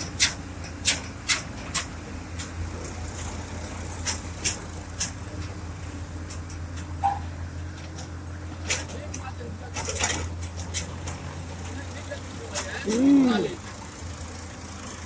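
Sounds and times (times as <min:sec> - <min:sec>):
sharp clacks: 0:00.0 - 0:05.6, 0:06.2 - 0:11.8
diesel engines humming: 0:00.0 - 0:15.0.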